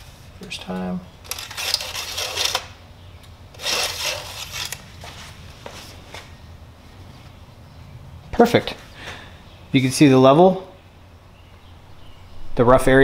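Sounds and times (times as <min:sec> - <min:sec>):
dipstick rubbing and scraping: 0:01.3 - 0:02.7, 0:03.6 - 0:04.8.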